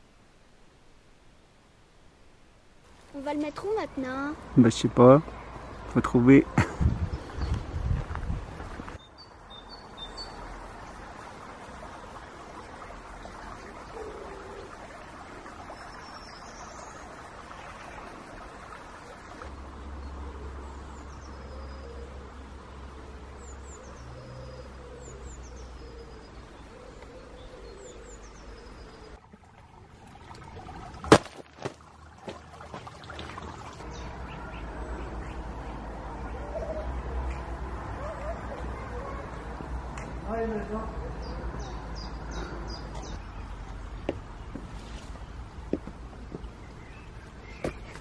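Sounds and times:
footstep crunching on gravel: 0:31.0 - 0:33.3.

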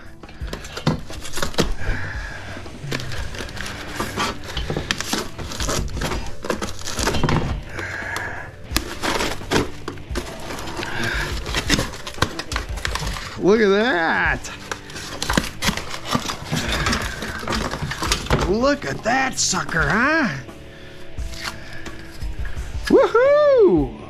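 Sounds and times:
cracking and scraping: 0:00.2 - 0:20.4
knife cutting plastic and foam: 0:02.8 - 0:13.5, 0:14.4 - 0:20.0.

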